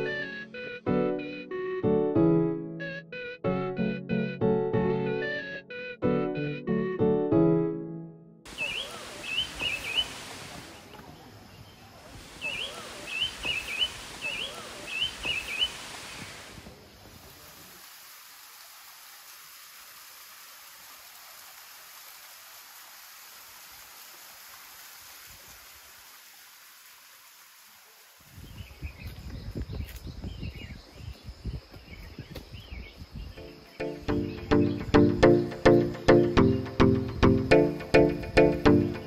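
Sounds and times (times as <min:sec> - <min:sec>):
bird chirping: 0:08.5 - 0:10.2, 0:11.1 - 0:15.8, 0:28.5 - 0:39.0
forest ambience hiss: 0:08.5 - 0:39.0
footsteps on dirt trail: 0:29.0 - 0:32.7.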